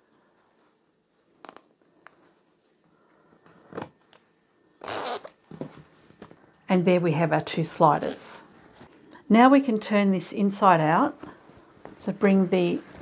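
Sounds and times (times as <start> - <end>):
zipper rasping: 4.8 - 5.4.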